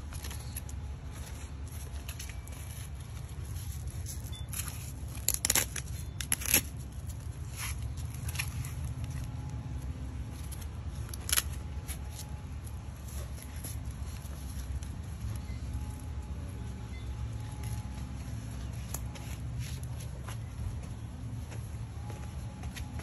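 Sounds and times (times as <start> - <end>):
velcro ripping and crackling: 2.2 - 9.3.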